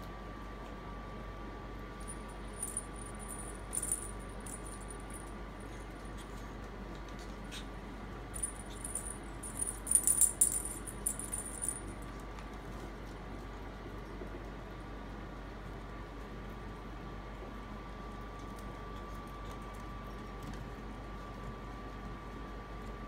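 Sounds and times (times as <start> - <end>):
small bells jingling: 2.0 - 5.3, 8.4 - 12.0.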